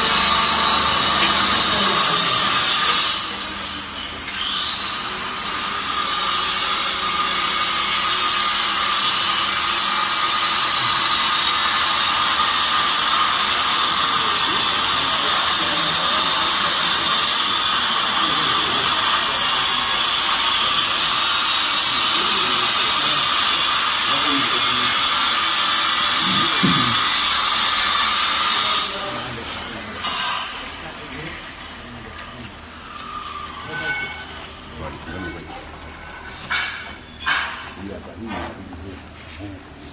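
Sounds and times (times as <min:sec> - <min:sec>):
baler machine whine: 0:00.0 - 0:02.6, 0:26.1 - 0:27.4.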